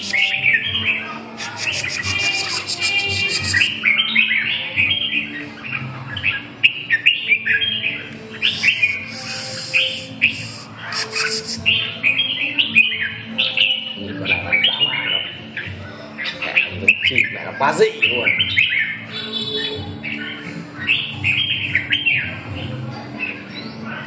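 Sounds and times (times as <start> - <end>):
birds chirping: 0.0 - 23.9
harsh hissing bursts: 1.4 - 3.7, 8.5 - 11.6.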